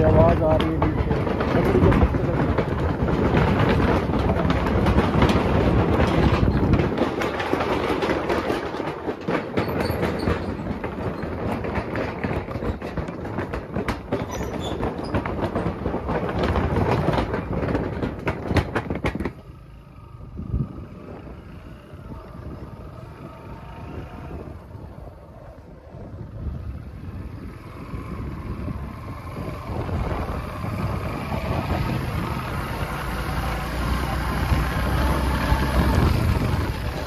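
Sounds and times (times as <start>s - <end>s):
steel bridge deck rattling: 0.0s - 19.5s
motorcycle engine running: 15.1s - 37.0s.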